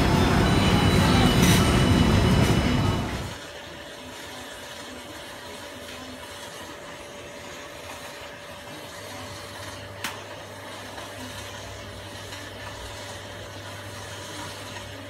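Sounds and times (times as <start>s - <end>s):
deeper hum: 0.0s - 3.4s.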